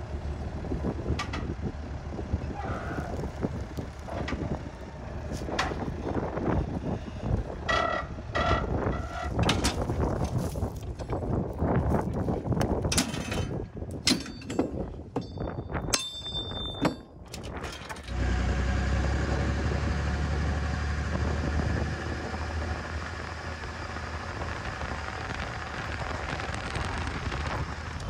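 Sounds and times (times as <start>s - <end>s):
pickup truck rumbling on road: 0.0s - 15.8s, 16.4s - 28.0s
metal clicks and knocks: 12.6s - 18.1s
chain clinking: 13.0s - 18.0s.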